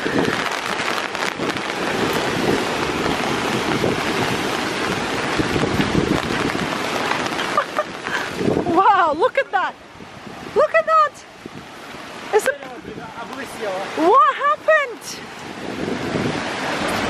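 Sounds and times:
heavy surf breaking on rocks: 0:00.0 - 0:17.0
strong wind gusting on microphone: 0:00.0 - 0:17.0.

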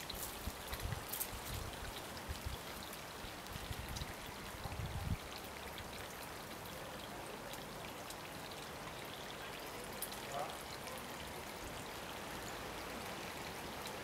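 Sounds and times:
wind buffeting microphone: 0:04.6 - 0:05.3.

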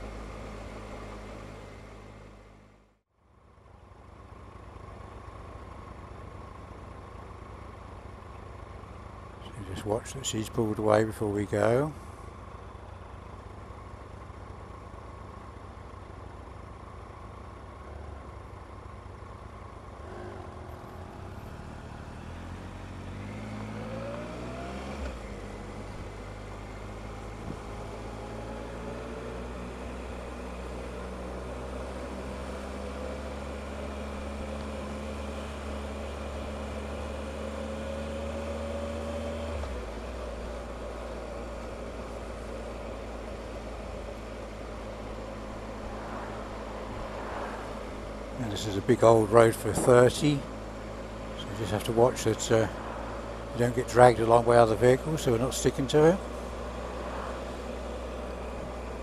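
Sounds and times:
motorcycle engine accelerating: 0:19.9 - 0:59.0.

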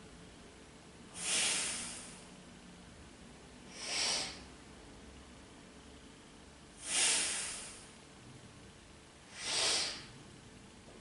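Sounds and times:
woman breathing hard: 0:01.1 - 0:02.3, 0:03.7 - 0:04.5, 0:06.8 - 0:07.9, 0:09.3 - 0:10.2.

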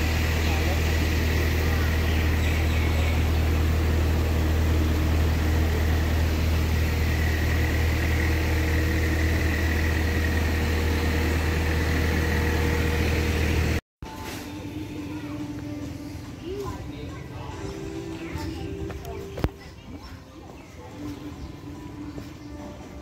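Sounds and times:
motor humming: 0:00.0 - 0:13.8.

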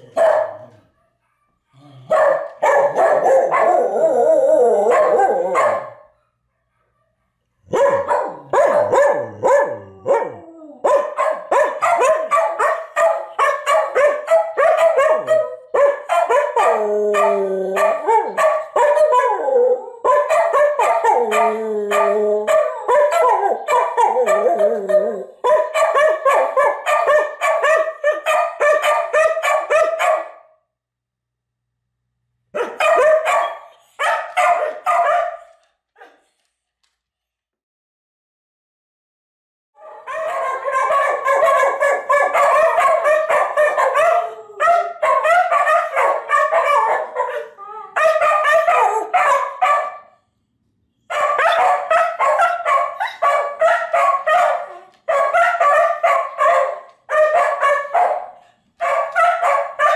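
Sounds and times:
dogs howling: 0:02.6 - 0:06.0, 0:07.7 - 0:26.8, 0:39.8 - 0:49.9, 0:51.3 - 0:58.3.

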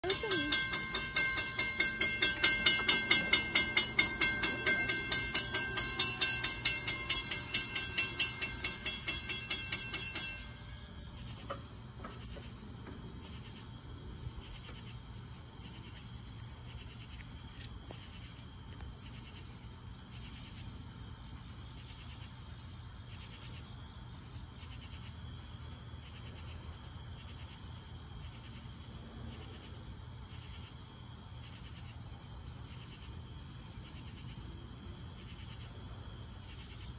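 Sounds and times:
crossing bell ringing: 0:00.0 - 0:11.6
crickets chirping: 0:00.0 - 0:36.9.

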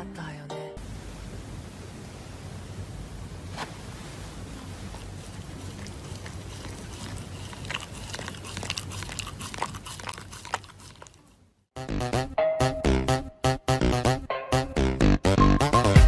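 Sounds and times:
low steady hum: 0:00.8 - 0:11.6
dog chewing paper mask: 0:04.6 - 0:11.4.

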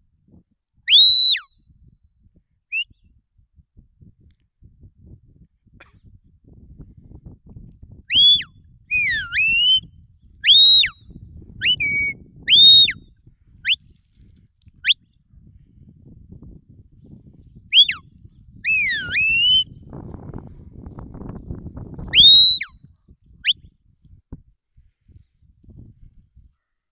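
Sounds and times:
sharp high whistle notes: 0:00.9 - 0:01.4, 0:08.1 - 0:09.8, 0:10.5 - 0:10.9, 0:11.6 - 0:13.0, 0:17.8 - 0:18.0, 0:18.7 - 0:19.7, 0:22.2 - 0:22.7.

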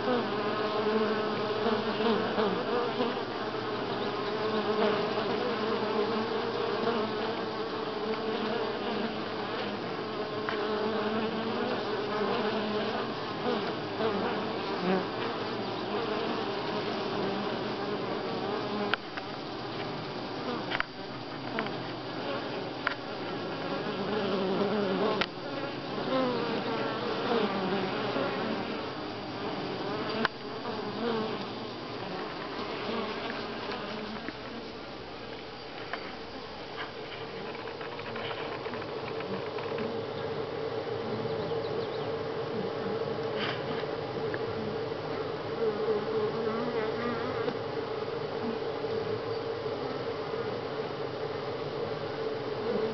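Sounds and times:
bees buzzing: 0:00.0 - 0:52.9.

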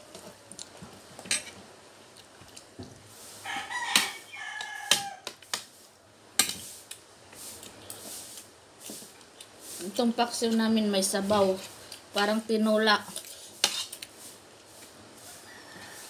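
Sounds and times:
rooster crowing: 0:03.4 - 0:05.4, 0:15.2 - 0:16.0.

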